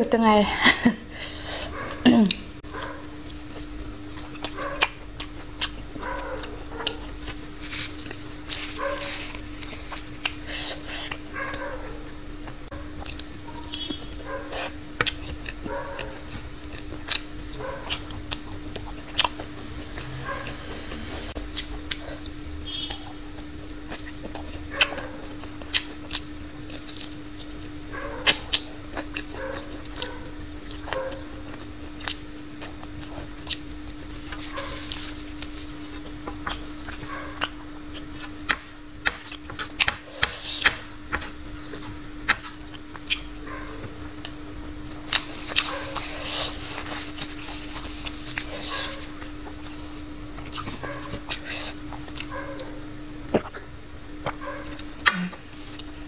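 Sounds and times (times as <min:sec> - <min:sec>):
low hum: 0:00.6 - 0:28.1
chewing and lip smacks: 0:01.8 - 0:11.3, 0:12.4 - 0:19.6, 0:21.5 - 0:43.4, 0:44.2 - 0:52.7.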